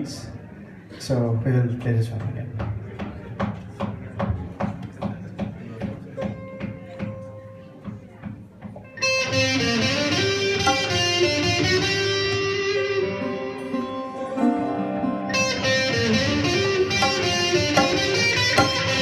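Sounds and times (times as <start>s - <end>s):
electric guitar: 8.6s - 19.0s
sarod playing: 9.0s - 19.0s.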